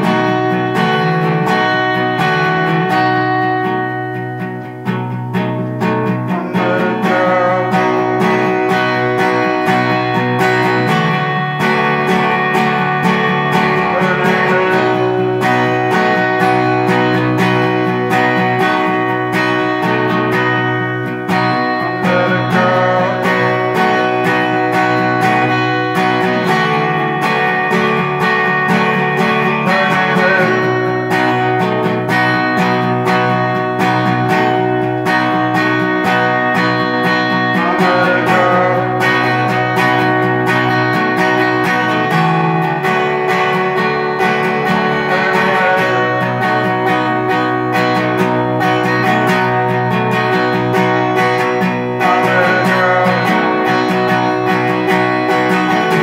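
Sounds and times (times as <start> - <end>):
acoustic guitar strumming: 0.0 - 56.0.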